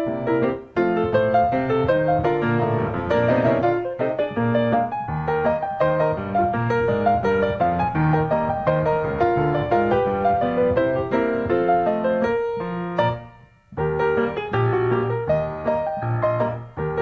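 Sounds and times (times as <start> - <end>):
ragtime piano: 0.0 - 17.0.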